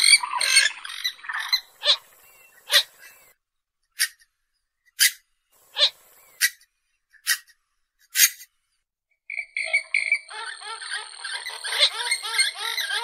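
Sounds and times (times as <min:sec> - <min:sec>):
bird fast chattering: 0:04.9 - 0:06.6, 0:07.2 - 0:07.5.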